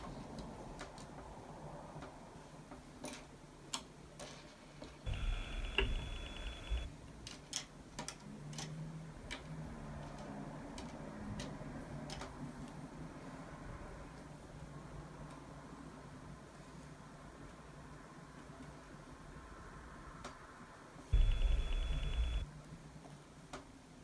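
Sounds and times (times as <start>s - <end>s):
faint high whine: 5.1s - 6.9s, 21.1s - 22.5s.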